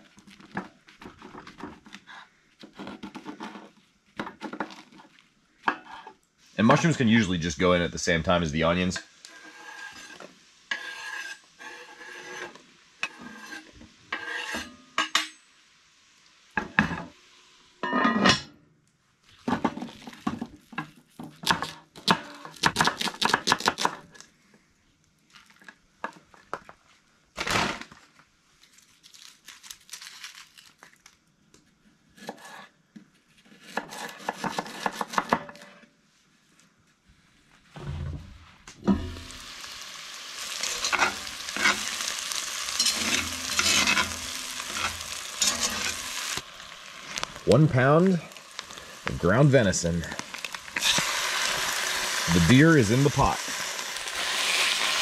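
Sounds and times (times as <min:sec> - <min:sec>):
clatter of cookware and utensils: 0:14.1 - 0:15.5, 0:17.8 - 0:18.5, 0:19.4 - 0:22.5, 0:40.6 - 0:41.9, 0:42.7 - 0:46.1.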